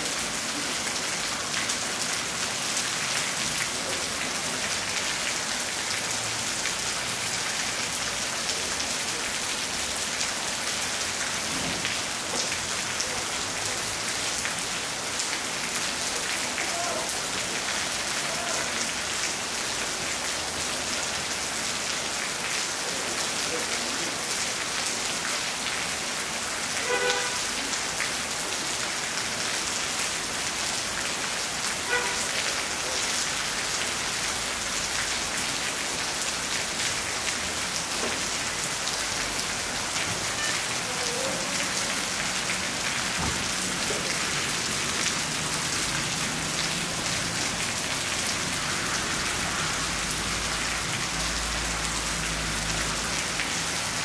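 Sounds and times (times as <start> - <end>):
steady rain on rooftops: 0.0 - 54.0.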